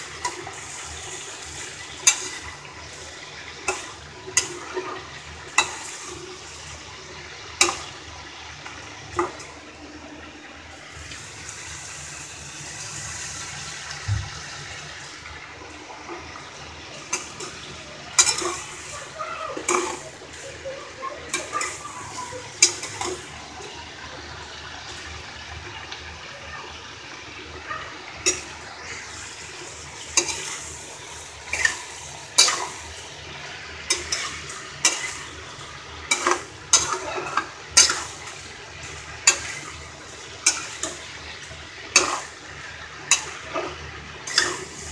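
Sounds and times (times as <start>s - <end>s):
frying hiss: 0.0s - 44.9s
metal spatula scraping pan: 17.1s - 18.9s, 19.6s - 20.4s, 30.0s - 32.9s, 33.8s - 35.4s, 36.0s - 38.5s, 39.2s - 39.8s, 41.9s - 42.4s, 43.1s - 44.9s.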